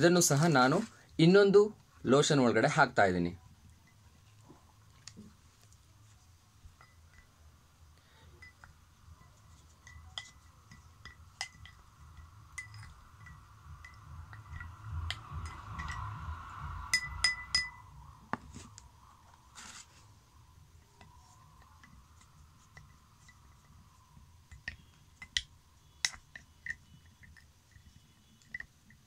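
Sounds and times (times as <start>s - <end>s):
stick clinking against glass: 6.7s - 18.1s, 21.0s - 29.0s.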